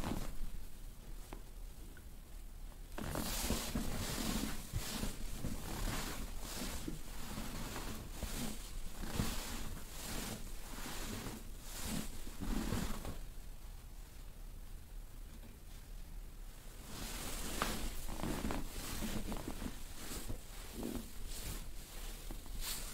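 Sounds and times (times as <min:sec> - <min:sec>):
hands rubbing over clothing: 0:03.0 - 0:13.2, 0:16.8 - 0:22.9.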